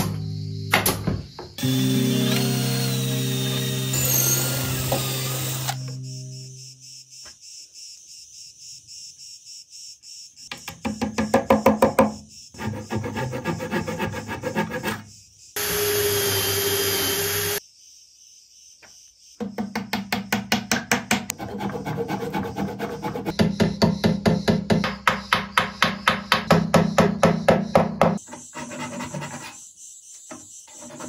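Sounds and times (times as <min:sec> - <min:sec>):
cordless drill whirring: 0:01.6 - 0:05.9, 0:15.6 - 0:17.6
hand saw cutting wood: 0:01.6 - 0:05.9, 0:12.6 - 0:17.6, 0:21.3 - 0:23.3.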